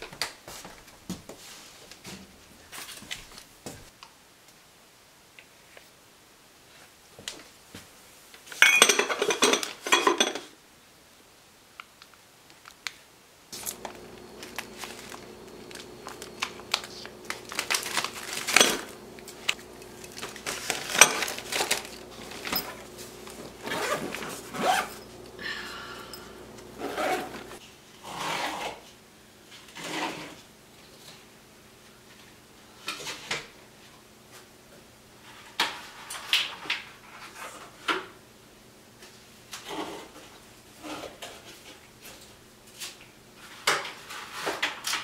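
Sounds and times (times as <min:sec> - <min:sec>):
jars and bottles clinking: 0:08.6 - 0:10.5, 0:13.6 - 0:27.6
paper packets rustling: 0:13.6 - 0:25.5
low steady hum: 0:13.6 - 0:27.6.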